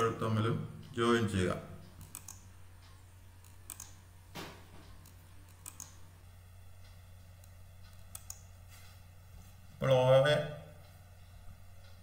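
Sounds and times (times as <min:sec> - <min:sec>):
low steady hum: 0:00.0 - 0:12.0
computer mouse clicks: 0:01.8 - 0:04.0, 0:04.8 - 0:06.0, 0:07.4 - 0:08.5.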